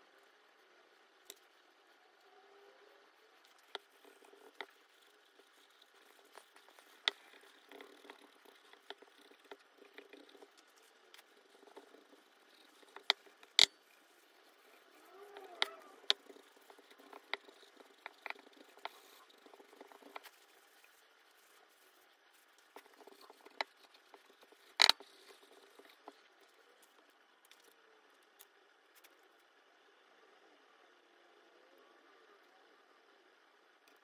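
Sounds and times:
metal parts clicking and knocking: 24.7s - 25.0s.

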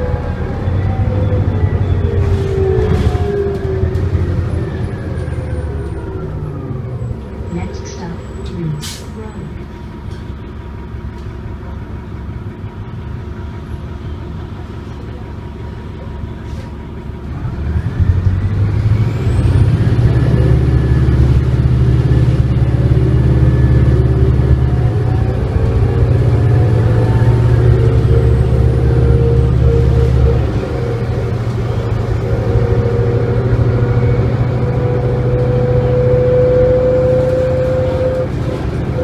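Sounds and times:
bus diesel engine: 0.0s - 39.0s
transmission whine: 17.3s - 39.0s.

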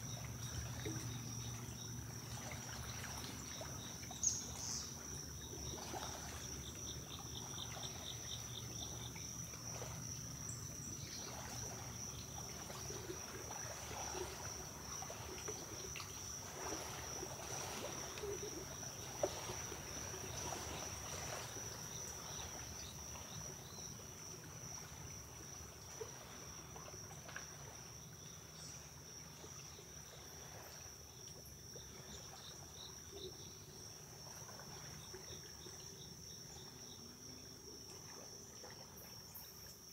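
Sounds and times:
insects trilling: 0.0s - 39.9s
deer splashing in water: 11.2s - 22.8s.

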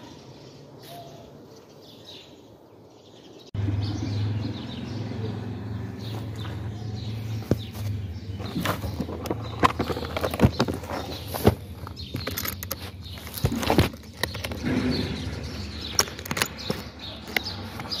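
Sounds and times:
plastic case being shut: 8.4s - 14.8s
metal latches clicking: 8.6s - 14.7s.

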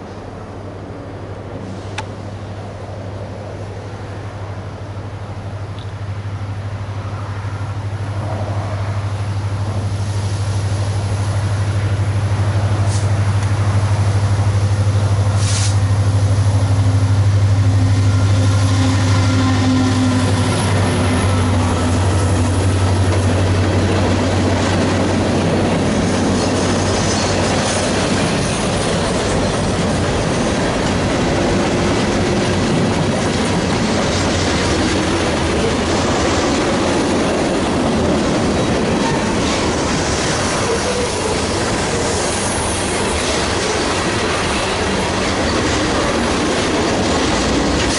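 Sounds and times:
diesel locomotive engine drone: 0.0s - 47.9s
train wheels clattering on rails: 18.1s - 47.9s.

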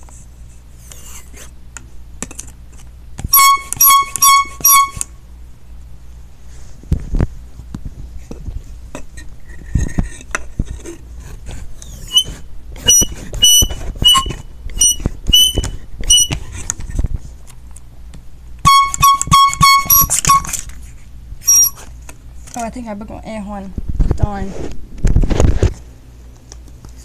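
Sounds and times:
air horn squeaks and toots: 3.3s - 5.1s, 11.8s - 16.5s, 18.6s - 20.6s, 21.4s - 21.9s.

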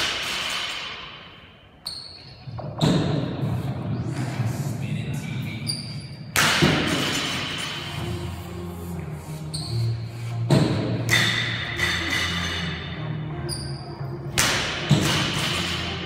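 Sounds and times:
music: 6.4s - 16.0s.

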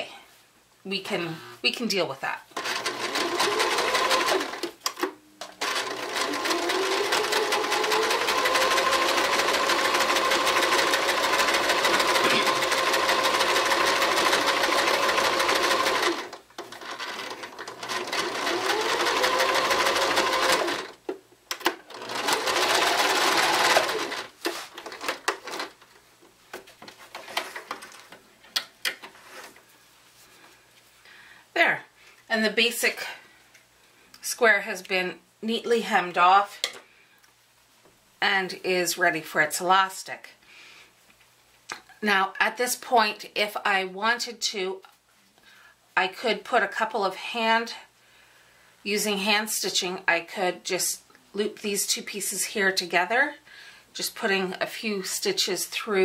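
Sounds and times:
sewing machine motor whining: 5.6s - 16.3s, 21.9s - 24.2s.

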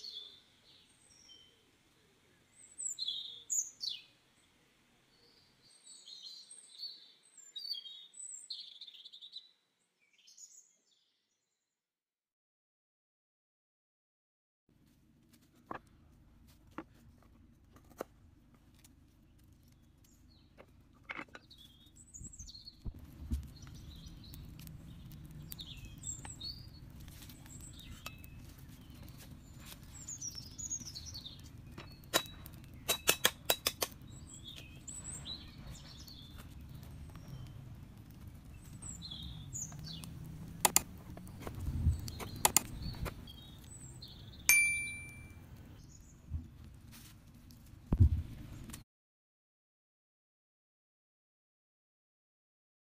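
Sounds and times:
low steady background: 14.7s - 48.8s
birds chirping: 21.3s - 46.2s
sharp knocks and clicks: 40.6s - 40.9s
bright ringing ding: 44.5s - 45.4s.

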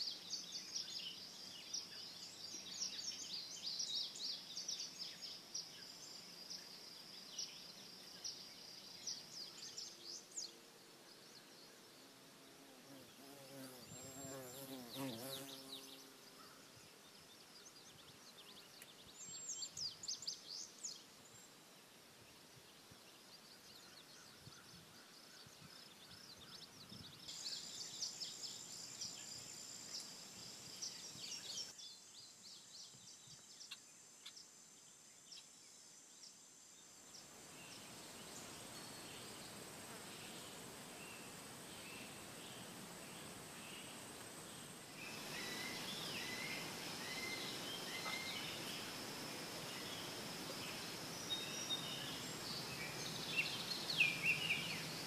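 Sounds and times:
bird chirps: 45.0s - 48.9s.

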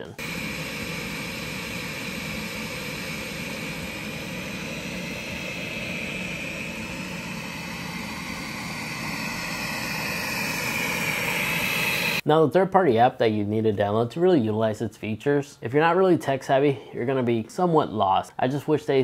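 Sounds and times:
high whine: 0.0s - 12.2s
robot vacuum fan hum: 0.0s - 12.2s.

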